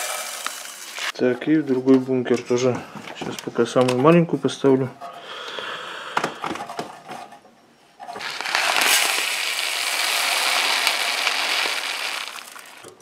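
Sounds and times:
dry peas pouring into metal hopper: 0.0s - 1.1s, 8.2s - 12.9s.

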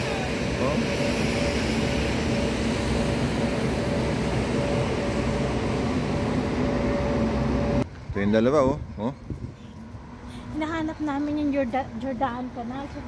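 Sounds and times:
steady rushing noise: 0.0s - 7.9s.

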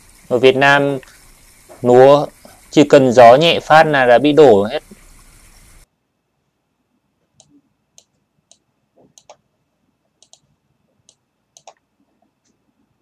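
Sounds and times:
faint sharp clicks: 10.2s - 10.5s, 11.1s - 11.8s.

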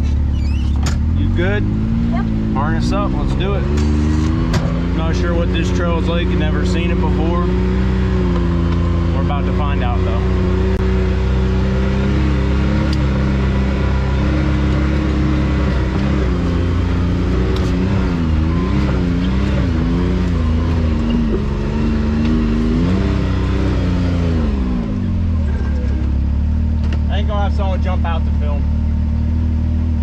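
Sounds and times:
utv engine revving: 0.0s - 30.0s.

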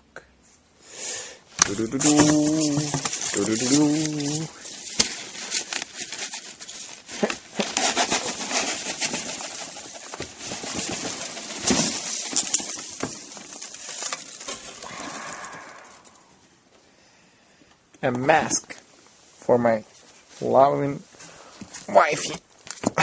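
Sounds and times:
hand rummaging packing peanuts: 1.5s - 16.3s.

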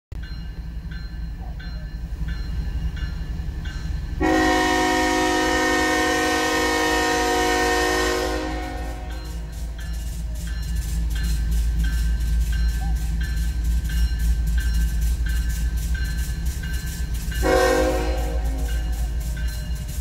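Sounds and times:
railroad crossing bell ringing: 0.2s - 20.0s
locomotive air horn: 4.2s - 9.5s, 17.4s - 18.8s.

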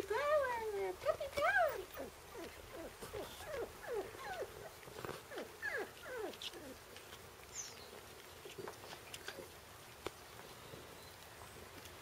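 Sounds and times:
puppies whining and squeaking: 1.4s - 6.8s.

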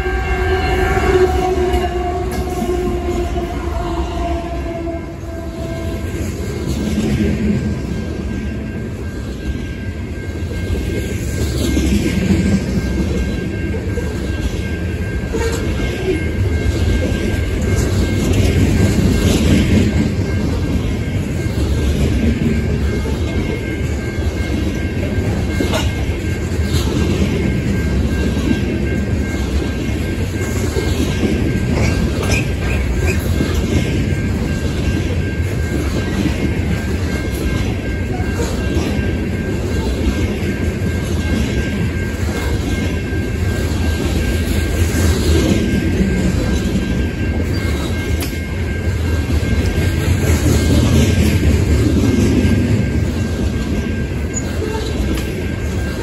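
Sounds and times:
train wheels rumbling on rails: 0.0s - 56.0s
train wheel clicks: 29.2s - 35.1s.

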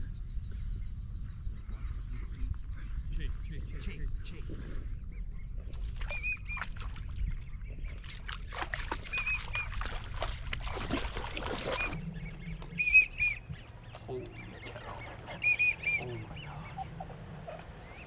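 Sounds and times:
ducks whistling: 6.1s - 6.9s, 9.0s - 10.0s, 11.3s - 18.0s.

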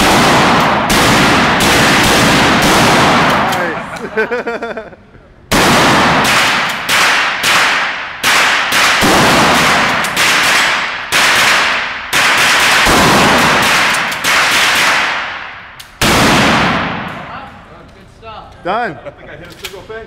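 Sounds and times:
shotgun shots echoing: 0.0s - 3.9s, 5.5s - 17.4s.

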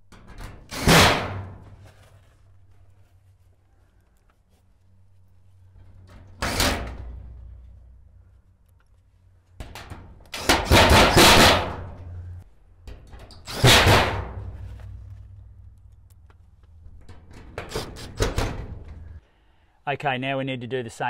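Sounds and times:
metal sheeting rattling: 9.6s - 12.2s, 12.9s - 15.6s.

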